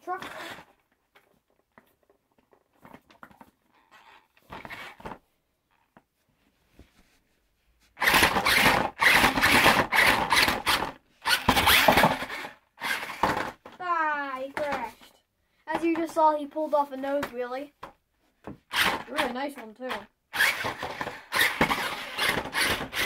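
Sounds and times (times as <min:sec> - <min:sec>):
toy truck motor whirring: 0:00.1 - 0:00.8, 0:03.9 - 0:05.2, 0:08.0 - 0:13.6, 0:18.7 - 0:19.3, 0:20.3 - 0:23.0.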